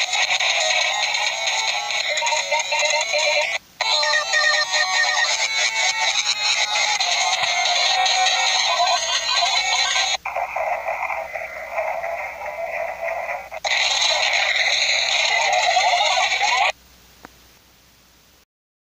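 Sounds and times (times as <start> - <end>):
harsh distorted filtered audio: 0.0 - 16.9.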